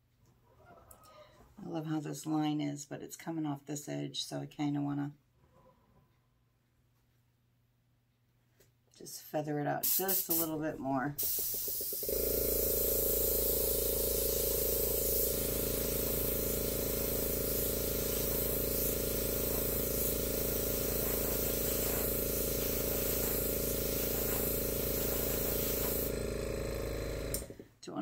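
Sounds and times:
airbrush hissing air: 9.8 - 10.6, 11.2 - 27.6
air compressor humming: 11.2 - 27.8.

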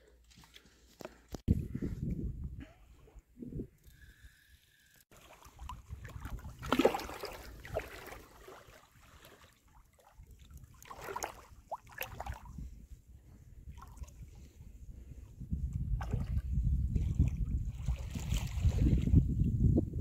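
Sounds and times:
water sloshing and splashing: 5.1 - 12.7, 13.7 - 14.5, 15.9 - 19.2.

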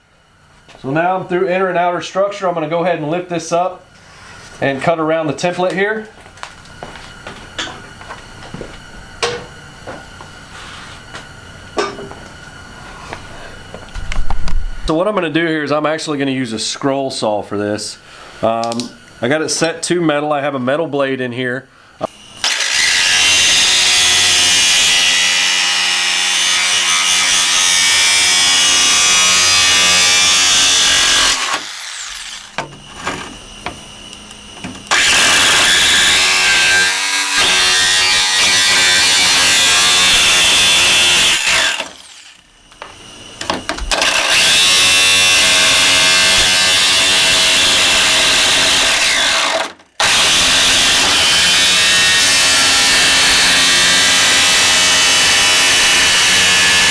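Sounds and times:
jigsaw cutting sheet metal: 22.4 - 33.2, 34.9 - 42.5, 43.9 - 56.9.

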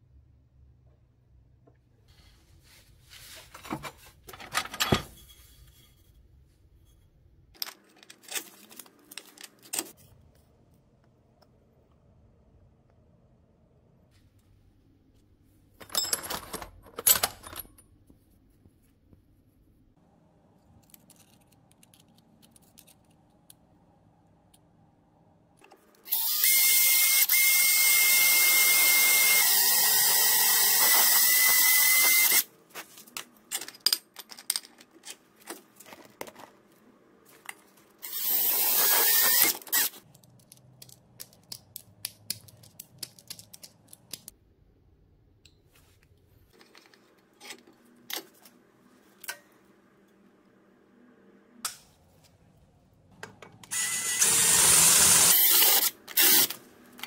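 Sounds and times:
power drill with hole saw whining: 26.1 - 32.5, 38.0 - 39.9, 53.7 - 56.6.

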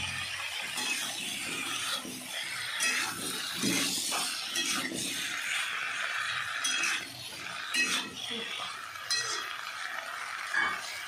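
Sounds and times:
frying sizzle: 0.0 - 11.0
utensil scraping metal pan: 0.7 - 9.5.

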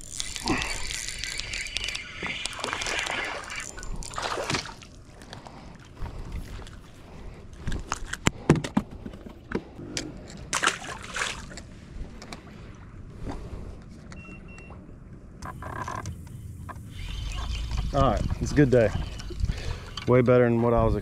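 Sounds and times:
water sloshing and splashing: 0.0 - 8.1, 10.2 - 14.6, 17.1 - 20.2.

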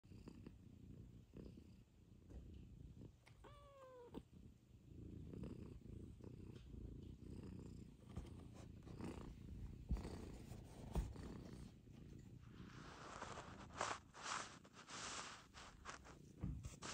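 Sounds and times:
cat purring: 0.0 - 16.9.

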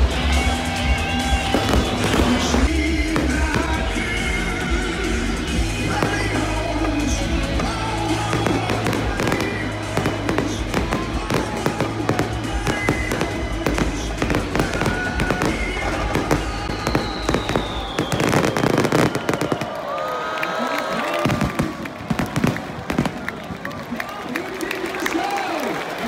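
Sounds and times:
music playing: 0.0 - 20.0
fireworks bursting with cracks: 0.0 - 20.1, 20.9 - 23.9
fireworks crackling: 0.0 - 26.0.

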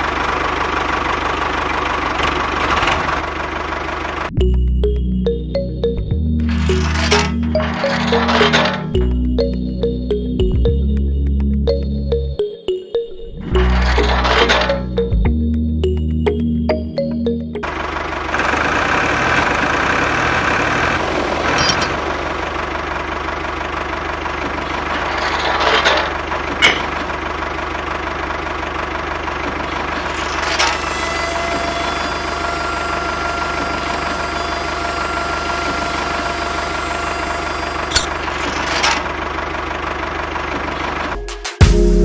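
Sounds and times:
motor running with low hum: 29.4 - 39.6.

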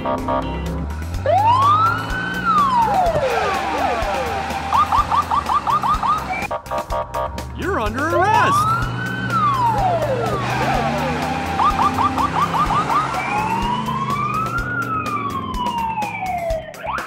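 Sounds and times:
police siren wailing: 1.2 - 6.5, 7.7 - 17.0
siren fast yelp chirps: 4.7 - 6.5.

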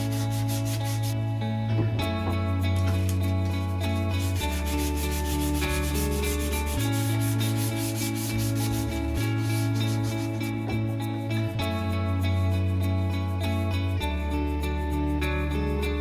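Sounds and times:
hands rubbing wooden handle: 0.0 - 1.2, 4.1 - 10.9
background music with sustained notes: 0.0 - 16.0.

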